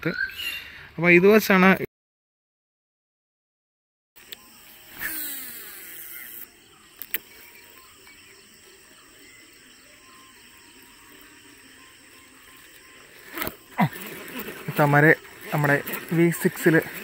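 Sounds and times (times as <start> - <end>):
fishing reel spool whirring: 4.2 - 17.0
faint reeling noise: 4.5 - 7.7.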